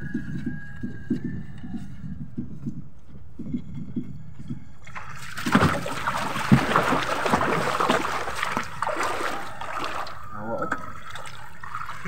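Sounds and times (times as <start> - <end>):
water splashing against boat: 4.9 - 12.0.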